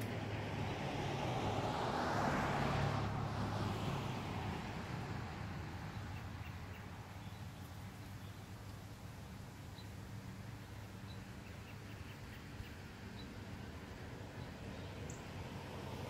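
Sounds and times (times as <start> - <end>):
vehicle passing by: 0.0 - 8.3, 12.5 - 16.0.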